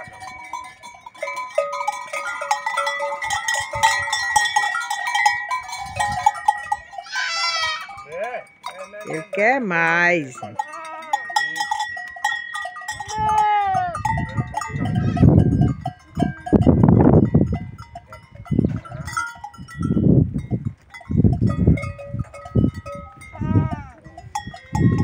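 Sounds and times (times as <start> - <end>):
goat bells clanking: 0.0 - 25.0
goats bleating: 7.0 - 8.0, 14.8 - 15.6, 23.2 - 24.1.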